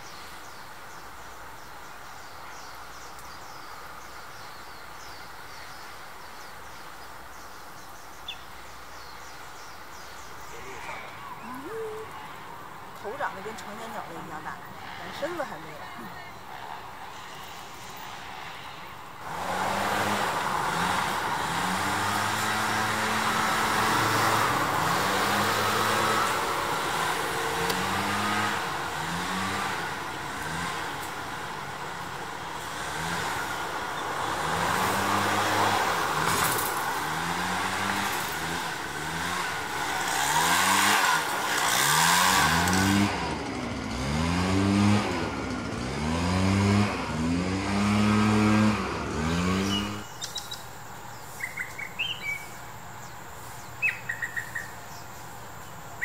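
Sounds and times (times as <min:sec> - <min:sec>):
bird chirps: 0:00.0 - 0:12.3, 0:49.6 - 0:56.0
leaf blower revving: 0:10.5 - 0:18.6, 0:19.2 - 0:50.6.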